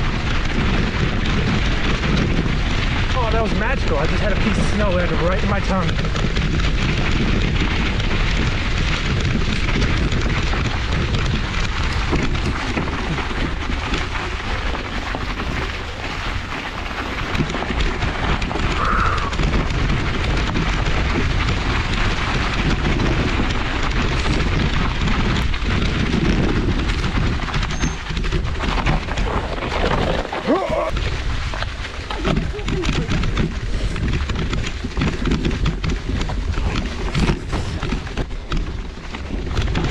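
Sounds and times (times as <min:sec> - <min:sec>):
bike rattling over ground: 0:00.0 - 0:39.9
wind rushing over microphone: 0:00.0 - 0:39.9.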